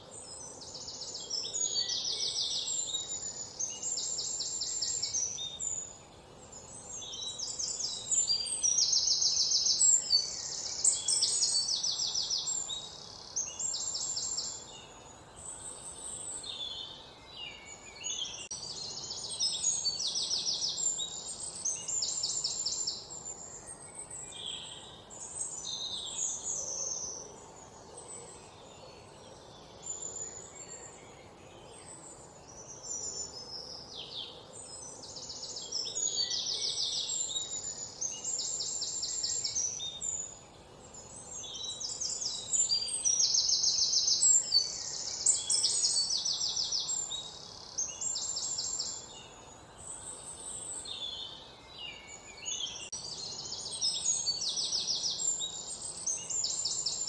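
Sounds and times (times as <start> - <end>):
birds singing trills: 0.0 - 57.0
faint outdoor background hiss: 0.0 - 57.0.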